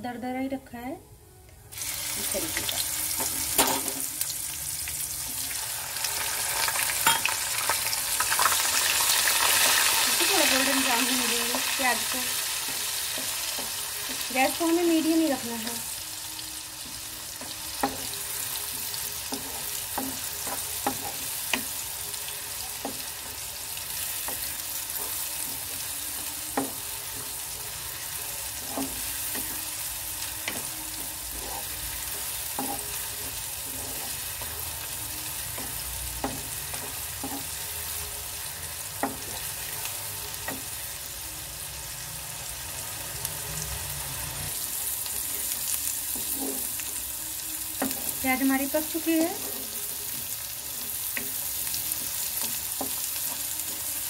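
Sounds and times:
onion paste sizzling in oil: 1.7 - 54.0
wooden spatula scraping a pan: 31.3 - 34.5, 45.2 - 47.0.

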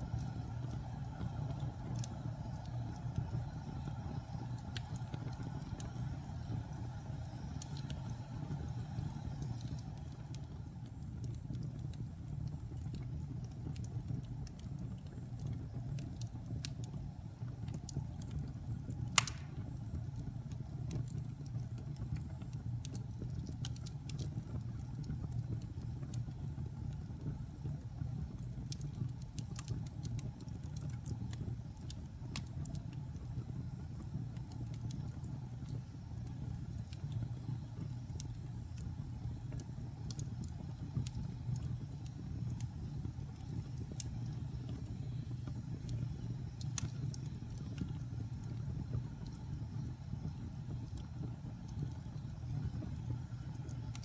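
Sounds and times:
wood fire rumble and crackles: 0.0 - 54.0
sharp fire pop: 19.2 - 19.8.

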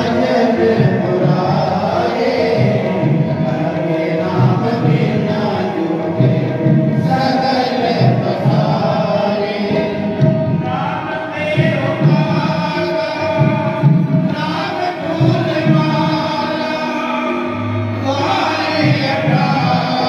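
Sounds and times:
low drum beat: 0.0 - 16.3
voices chanting a hymn: 0.0 - 20.0.

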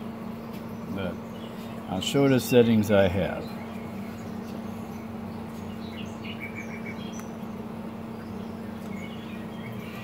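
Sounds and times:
birds chirping: 0.0 - 10.0
fan humming: 0.0 - 10.0.

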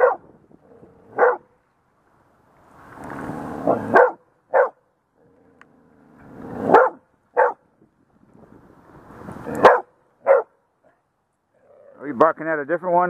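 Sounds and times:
dog barking: 0.0 - 0.2, 1.2 - 1.4, 3.7 - 4.8, 6.7 - 7.6, 9.6 - 10.6.

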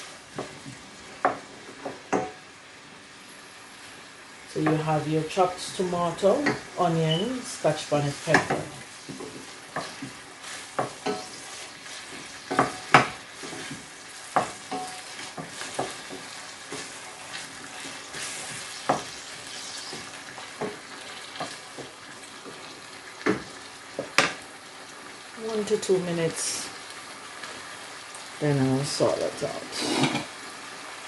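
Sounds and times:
vegetables sizzling in oil: 0.0 - 31.0
pan knocking while stirred: 0.3 - 2.4, 6.4 - 6.7, 8.3 - 24.4.

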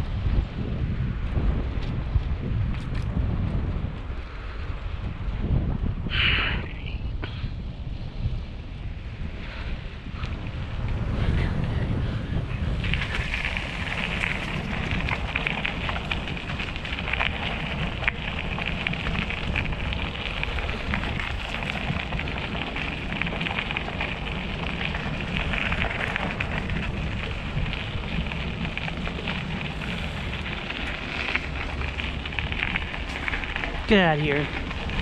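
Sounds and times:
wind rumbling on microphone: 0.0 - 35.0
bike tyres crackling over dirt: 7.2 - 35.0.

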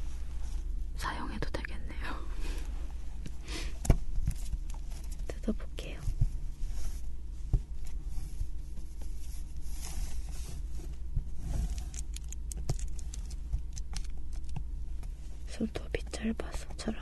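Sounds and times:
plastic film crinkling: 11.7 - 14.6.

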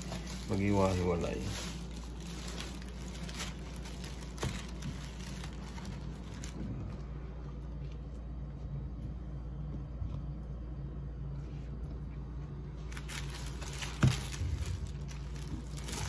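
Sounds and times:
leaves rustling and crinkling: 0.0 - 7.1, 12.8 - 16.0
steady low hum: 0.0 - 16.0.

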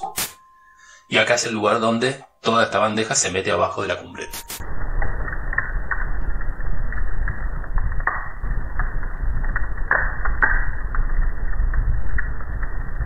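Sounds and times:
wood fire crackling and popping: 4.3 - 13.0.

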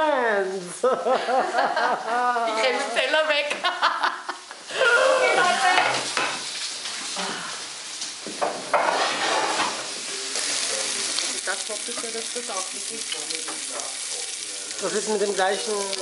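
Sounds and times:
meat sizzling in a pan: 4.6 - 16.0.

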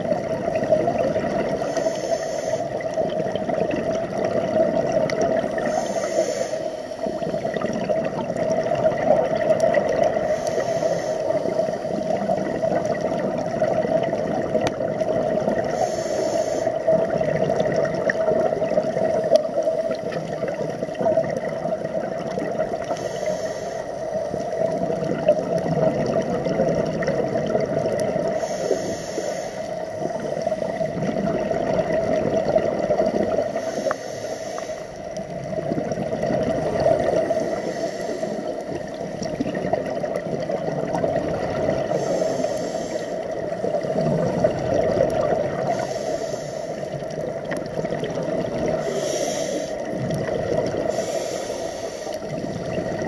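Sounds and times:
muffled rushing of bubbles: 0.0 - 23.2, 24.0 - 33.8, 35.0 - 53.0
regulator inhalation hiss: 1.3 - 3.0, 5.4 - 7.6, 10.0 - 12.3, 15.6 - 17.0, 22.8 - 24.6, 28.3 - 30.9, 33.5 - 35.3, 37.1 - 39.2, 41.9 - 44.2, 45.6 - 47.2, 48.7 - 50.0, 50.8 - 52.6.

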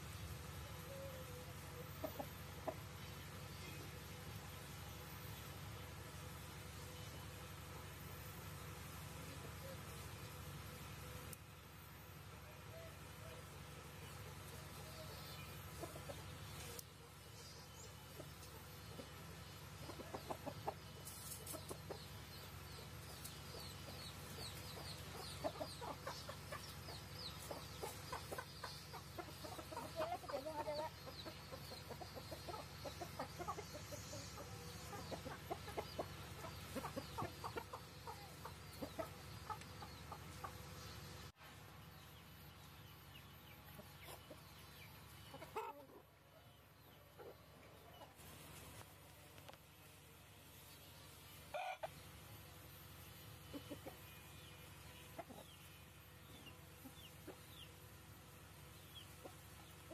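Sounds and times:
young roosters clucking: 0.0 - 59.9.

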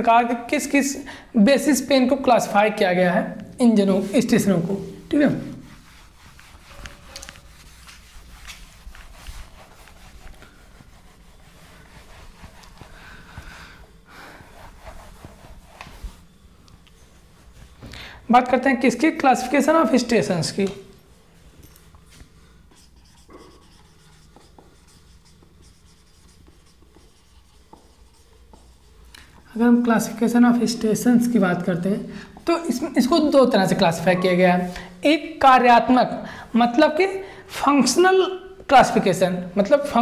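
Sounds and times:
steady low hum: 0.0 - 34.0
cloth wiping a whiteboard: 3.6 - 16.4, 22.1 - 30.9.

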